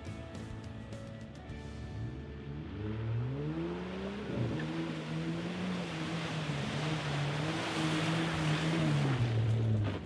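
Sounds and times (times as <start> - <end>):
tyres splashing through water: 4.0 - 10.0.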